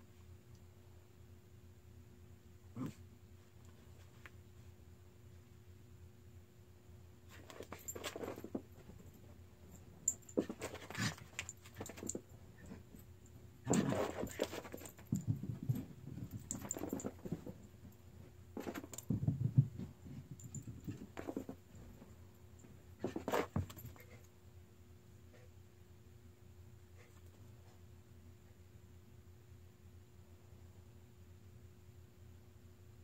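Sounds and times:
dog scrambling across floor: 0:07.3 - 0:09.1, 0:10.3 - 0:12.7, 0:13.7 - 0:17.6, 0:18.6 - 0:21.6, 0:23.0 - 0:24.2
light metallic jingling: 0:07.4 - 0:17.7.

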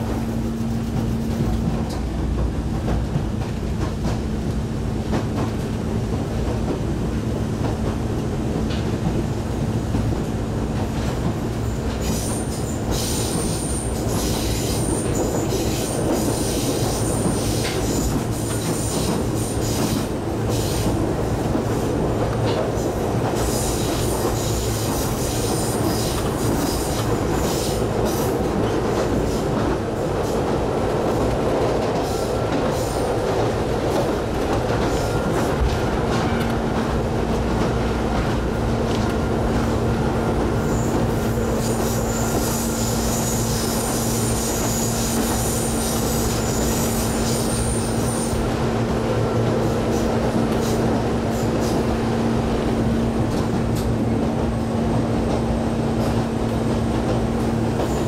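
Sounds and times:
train running rumble and hum: 0:00.0 - 0:58.0
high wheel squeal: 0:40.6 - 0:48.4.

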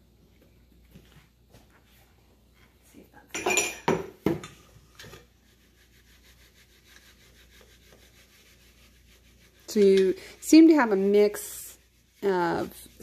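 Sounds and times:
faint rubbing of flour in sieve: 0:04.6 - 0:13.0.

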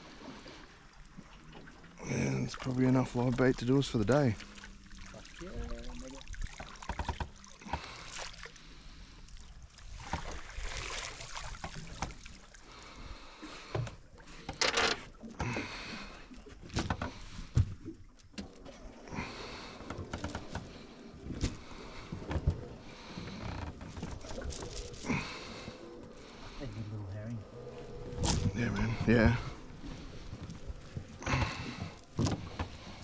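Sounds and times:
knocks and clicks on a boat: 0:06.5 - 0:07.9, 0:13.6 - 0:15.7, 0:16.6 - 0:18.5, 0:19.8 - 0:24.2, 0:31.0 - 0:33.0
splashy rushes: 0:09.9 - 0:11.8.

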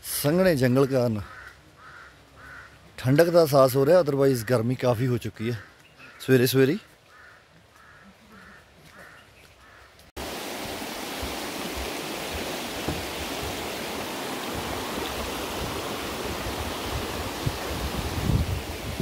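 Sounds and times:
faint bird calls: 0:01.2 - 0:02.8, 0:05.5 - 0:10.1
river water rushing: 0:10.2 - 0:19.0
wind on microphone: 0:10.5 - 0:19.0.

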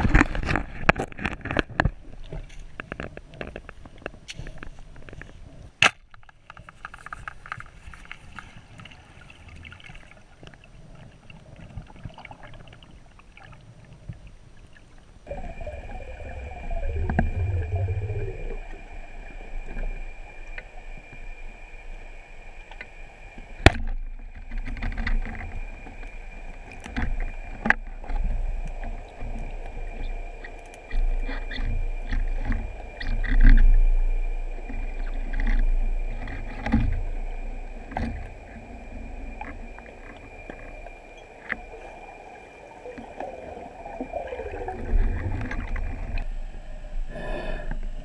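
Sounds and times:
muffled underwater rush: 0:15.2 - 0:48.0.

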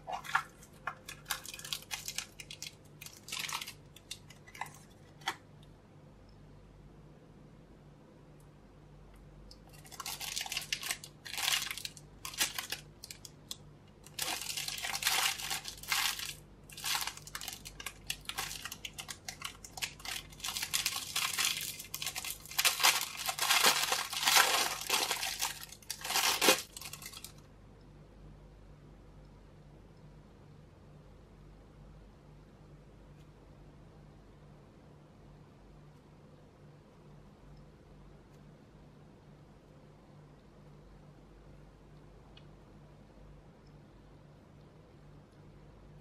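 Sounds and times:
plastic bag crinkling and tearing: 0:00.0 - 0:05.4, 0:09.6 - 0:27.4.

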